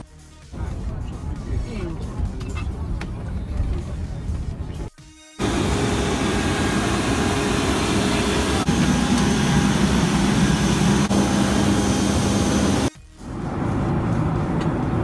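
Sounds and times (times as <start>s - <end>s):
jet turbine whine: 5.4s - 15.0s.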